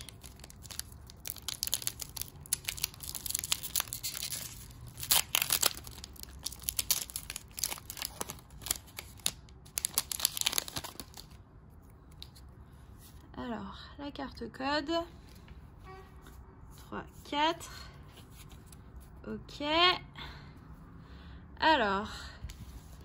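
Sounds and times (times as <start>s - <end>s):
foil wrapper tearing and crinkling: 0.0s - 11.4s.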